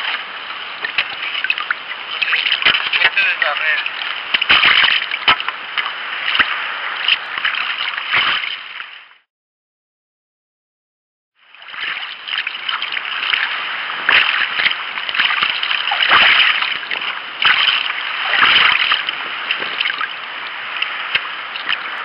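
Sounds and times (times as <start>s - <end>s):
paddle strokes splashing: 0.0s - 9.1s, 11.6s - 22.0s
water rushing along hull: 0.0s - 9.2s, 11.4s - 22.0s.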